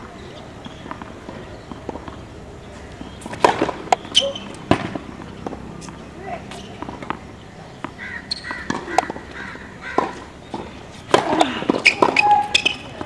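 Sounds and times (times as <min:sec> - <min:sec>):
tennis ball bouncing on hard court: 0:00.6 - 0:02.2, 0:03.0 - 0:13.0
tennis ball hit by racquets: 0:02.9 - 0:13.0.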